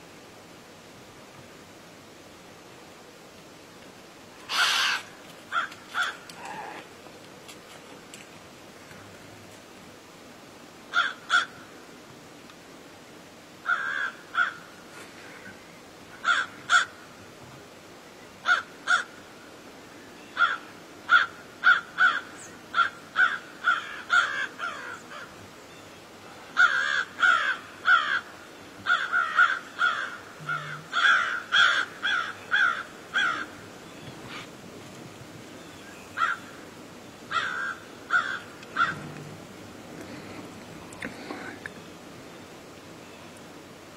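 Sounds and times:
crows cawing: 4.4 - 6.8, 10.9 - 11.6, 13.6 - 14.7, 16.2 - 17.0, 18.4 - 19.2, 20.4 - 25.4, 26.6 - 33.6, 36.2 - 36.6, 37.3 - 39.2.

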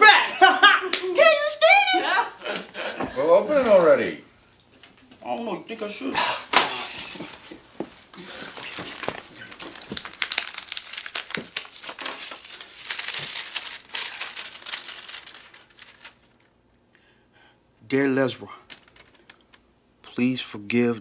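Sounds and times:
paper crinkling: 8.2 - 16.5, 18.6 - 19.6.

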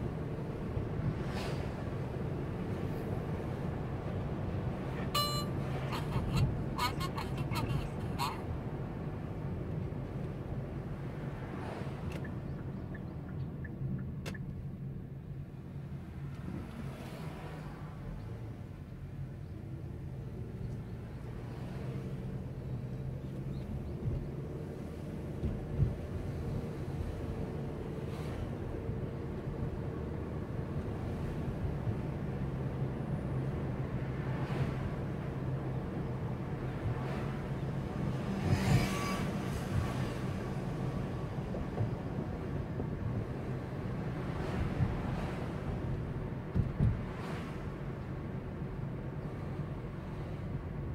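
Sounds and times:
car engine and tyre rumble: 0.0 - 50.9
road noise: 0.0 - 50.9
faint tone: 5.2 - 5.6.

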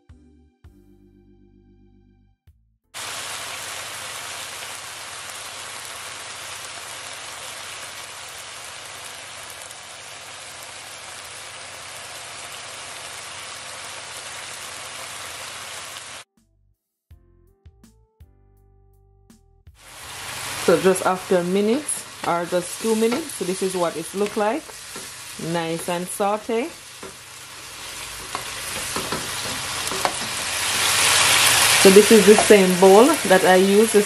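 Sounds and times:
vegetables sizzling in oil: 3.0 - 16.2, 19.8 - 34.0.

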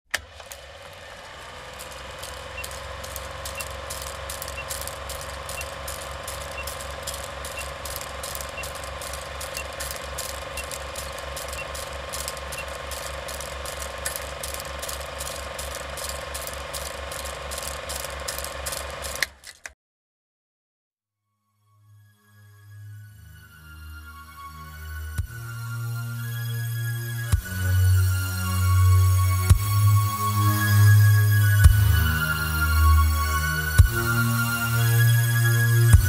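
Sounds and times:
film projector clatter: 0.1 - 19.6
low pulsing hum: 2.2 - 19.0, 25.0 - 36.0.

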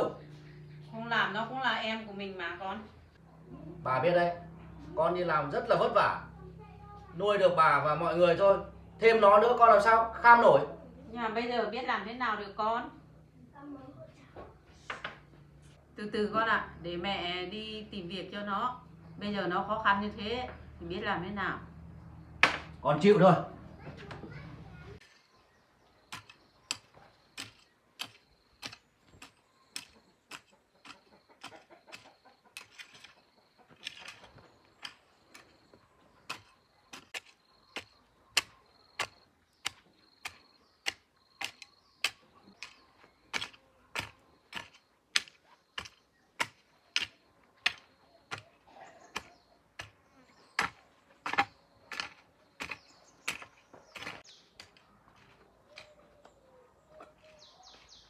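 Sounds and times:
hoe chopping into dry soil: 26.1 - 55.9.

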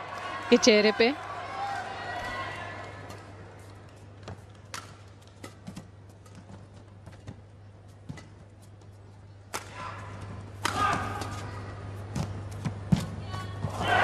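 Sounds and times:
arena crowd noise: 0.0 - 5.7, 9.3 - 14.0
racket hitting shuttlecock: 4.2 - 6.5, 10.6 - 11.6.

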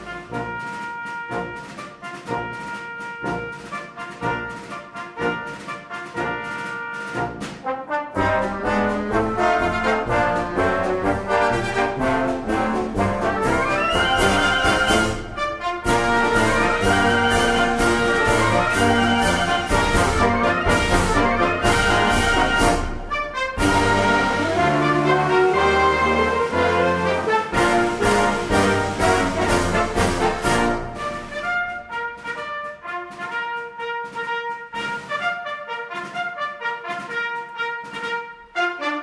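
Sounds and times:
instrumental background music: 0.0 - 39.0.

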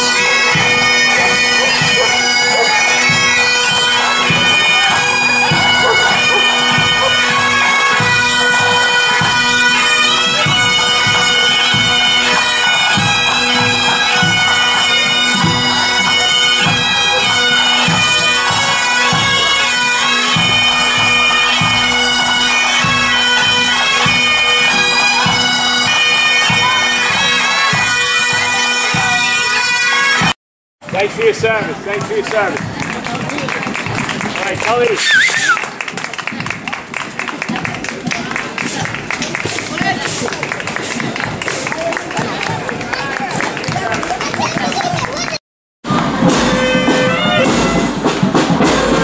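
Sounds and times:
steady drumbeat: 0.0 - 29.2, 37.4 - 49.0
bagpipes playing: 0.0 - 30.4, 45.9 - 49.0.

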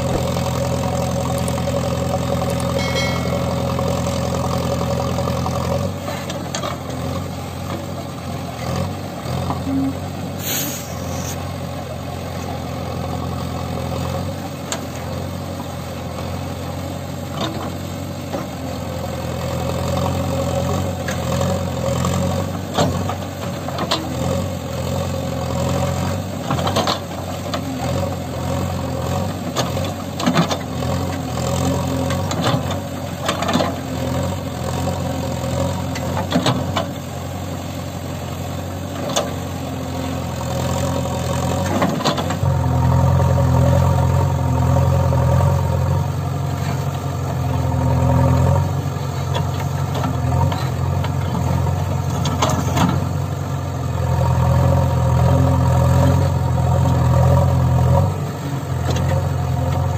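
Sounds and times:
diesel engine running under load: 0.0 - 59.9.

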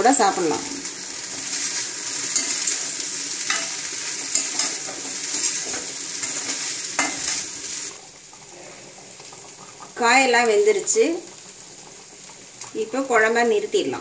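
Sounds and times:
food sizzling in a pan: 0.0 - 14.0
spatula scraping pan: 1.2 - 7.8.

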